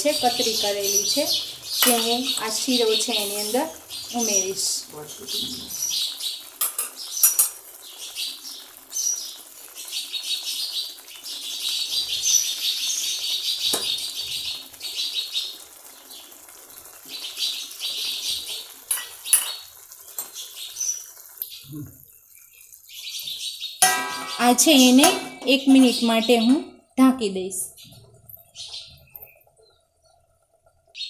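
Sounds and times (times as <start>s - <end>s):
sparrows chirping: 0.0s - 16.4s, 17.0s - 30.2s
kitchen utensils clinking: 1.8s - 3.6s, 6.6s - 7.7s, 18.8s - 20.4s, 23.8s - 26.6s.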